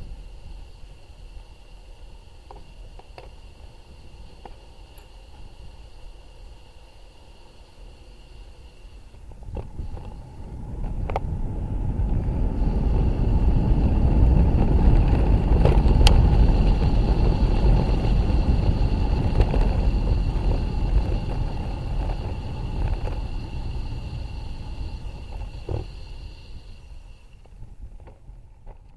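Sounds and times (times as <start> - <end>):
bicycle tyre rumble: 0.0 - 28.9
wind buffeting microphone: 9.2 - 28.9.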